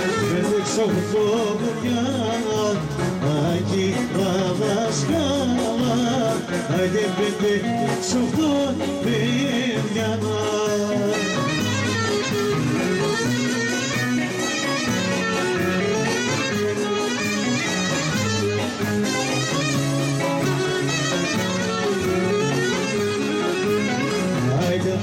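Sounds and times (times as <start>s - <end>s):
clarinet melody: 0.0s - 2.5s, 10.8s - 25.0s
bass beat: 0.0s - 25.0s.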